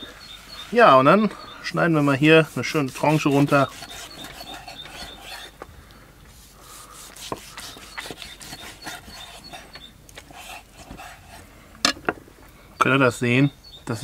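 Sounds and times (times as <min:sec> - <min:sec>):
knife slicing through meat: 0:02.5 - 0:05.5, 0:06.9 - 0:11.4.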